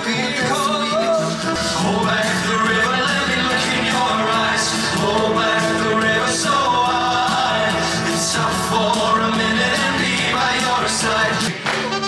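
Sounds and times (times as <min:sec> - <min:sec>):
backing band playing: 0:00.0 - 0:12.0
male vocal group singing: 0:00.0 - 0:12.0.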